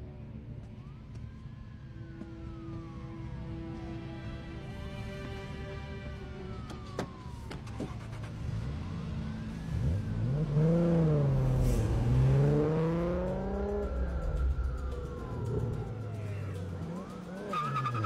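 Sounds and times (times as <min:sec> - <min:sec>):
police sirens wailing: 0:00.0 - 0:18.0
sports car engine revving: 0:07.1 - 0:18.0.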